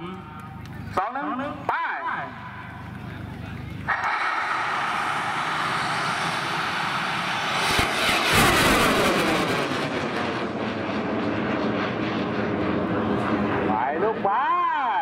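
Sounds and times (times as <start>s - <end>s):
rocket roaring as it lifts off: 3.8s - 14.2s.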